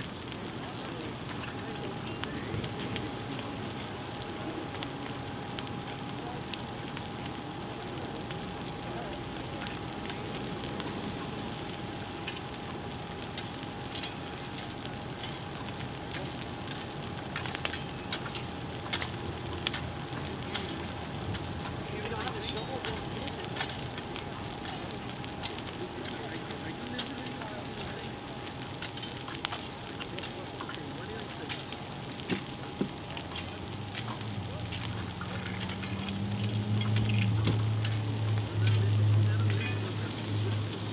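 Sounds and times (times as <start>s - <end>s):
brush fire crackling: 0.0s - 40.9s.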